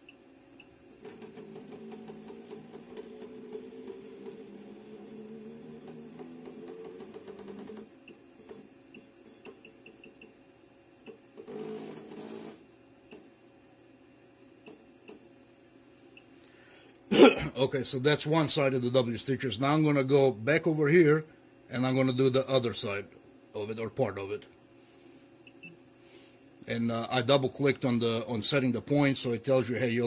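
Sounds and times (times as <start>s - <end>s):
feed motors running: 0.8s - 8.7s.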